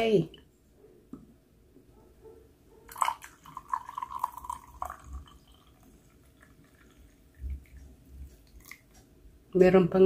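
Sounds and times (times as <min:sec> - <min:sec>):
coffee trickling into a mug: 0:02.9 - 0:09.0
faint drips: 0:02.9 - 0:09.2.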